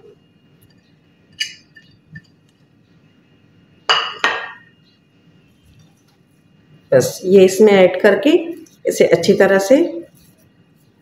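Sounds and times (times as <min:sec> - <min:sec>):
glass bowls clinking: 0:01.3 - 0:02.4, 0:03.9 - 0:04.7
glass bowl knocking on counter: 0:03.9 - 0:04.6.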